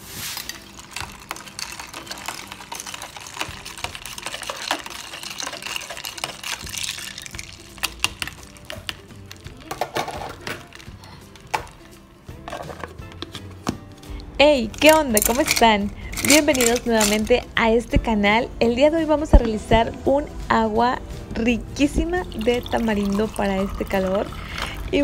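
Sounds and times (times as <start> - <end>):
liquid swishing: 0.0 - 9.4
ice cubes clinking in a pitcher: 0.0 - 13.0, 14.8 - 17.5, 22.2 - 25.0
background music: 0.0 - 25.0.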